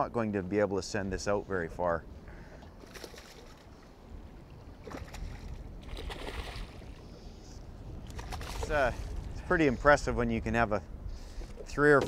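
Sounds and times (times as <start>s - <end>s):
fish splashing in water: 4.8s - 7.0s.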